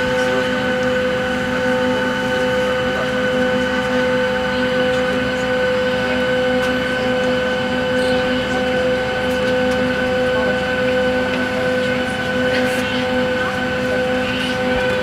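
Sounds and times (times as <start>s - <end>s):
aircraft cabin mechanical hum: 0.0s - 15.0s.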